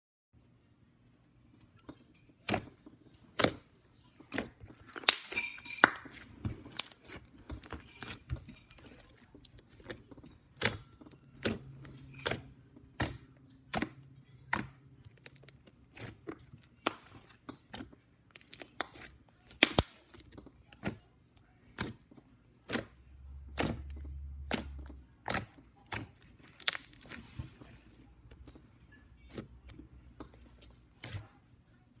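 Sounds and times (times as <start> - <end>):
slime squished by hand: 22.6 - 27.6.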